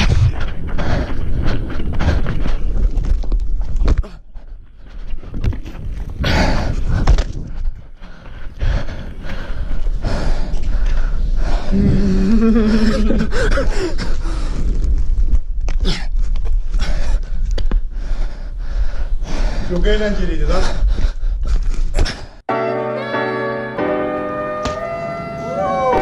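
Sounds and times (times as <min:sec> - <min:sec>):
wind rumbling on microphone: 0:00.0 - 0:03.9
running footsteps: 0:00.0 - 0:12.5
heavy breathing: 0:00.6 - 0:02.9, 0:06.2 - 0:14.8, 0:15.8 - 0:22.4.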